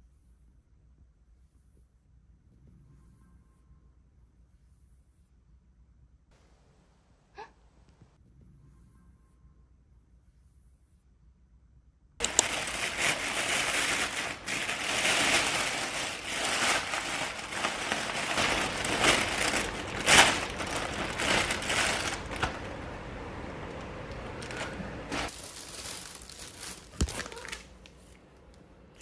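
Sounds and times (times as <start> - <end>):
plastic bag crinkling: 12.2 - 28.2.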